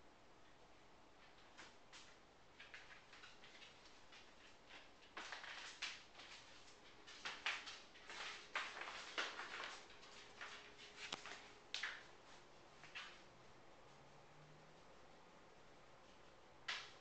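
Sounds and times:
faint handling scuffs and rustles: 1.2 - 13.3.

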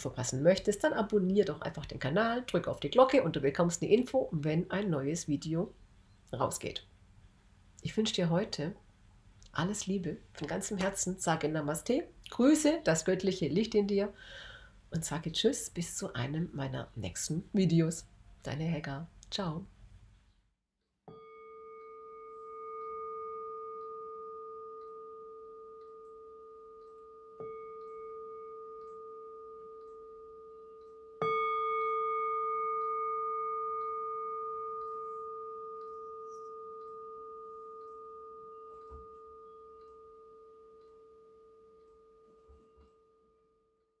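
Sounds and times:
singing bowl ringing: 21.1 - 44.0.

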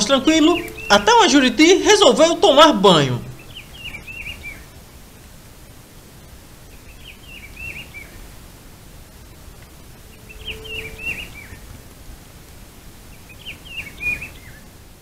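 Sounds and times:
songbird warbling: 0.0 - 4.6, 10.1 - 11.6
steady background hiss: 0.0 - 15.0.

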